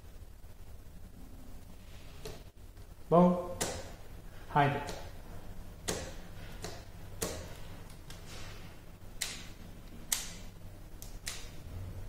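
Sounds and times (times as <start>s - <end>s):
faint steady low hum: 0.0s - 12.0s
light switch clicks: 10.1s - 11.6s.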